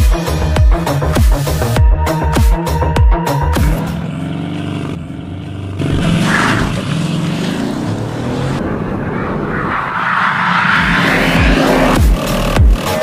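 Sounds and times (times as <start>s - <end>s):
car engine accelerating hard: 3.2s - 13.0s.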